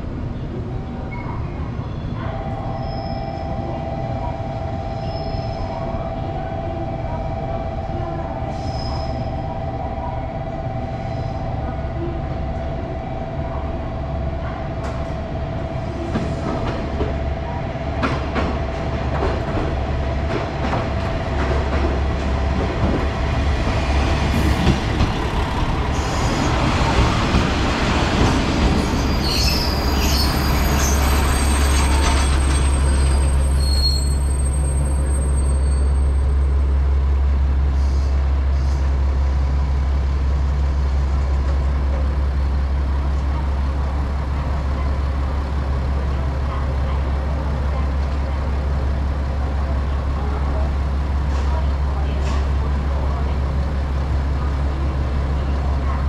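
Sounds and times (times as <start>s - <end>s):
train brakes squealing: 2.7s - 3.5s, 5.0s - 5.9s, 8.5s - 9.4s, 28.7s - 36.5s, 37.7s - 38.9s.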